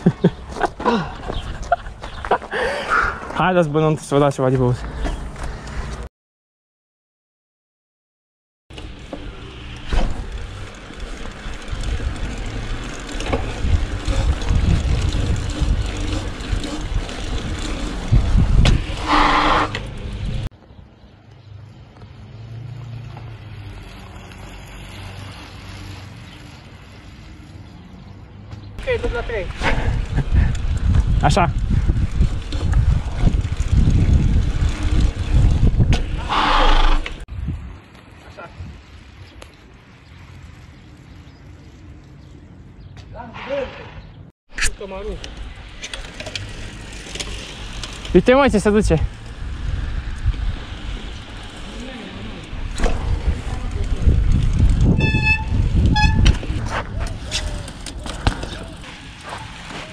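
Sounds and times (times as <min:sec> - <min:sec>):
wind rumbling on microphone: 0:11.4 - 0:20.5, 0:28.9 - 0:41.0, 0:47.6 - 0:59.8.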